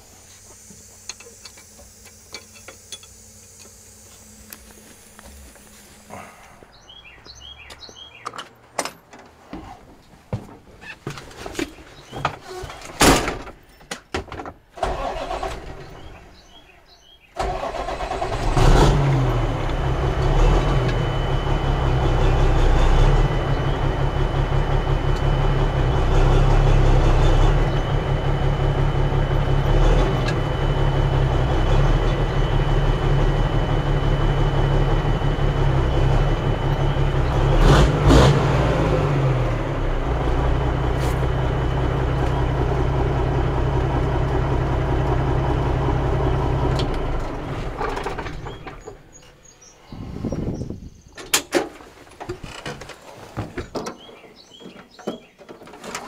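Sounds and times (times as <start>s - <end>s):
diesel engine starting and idling: 14.7s - 51.4s.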